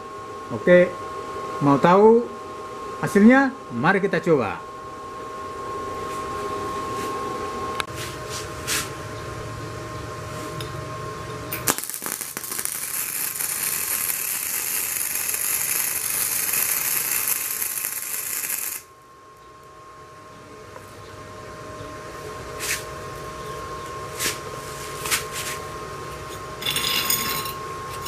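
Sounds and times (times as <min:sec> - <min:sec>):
steady whine and hum: 0:00.0 - 0:28.0
welding arc crackling and sizzling: 0:11.5 - 0:18.9.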